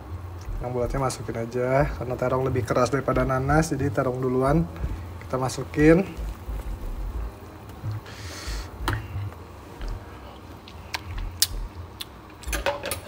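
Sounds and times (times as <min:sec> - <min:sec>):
short hiss: 0:08.0 - 0:08.8.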